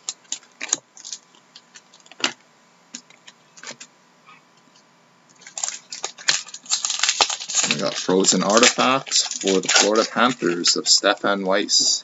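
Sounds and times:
cards rustling: 0:05.4 - 0:11.9.

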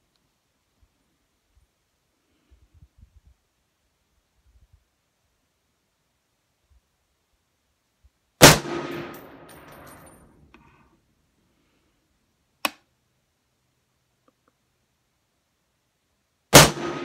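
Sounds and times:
rifle shot echoing: 0:08.4 - 0:09.9, 0:16.5 - 0:17.0.

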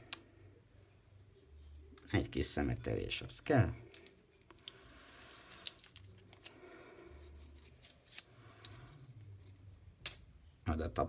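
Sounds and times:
plastic film wrapper crinkling: 0:03.9 - 0:06.6, 0:07.2 - 0:08.9.

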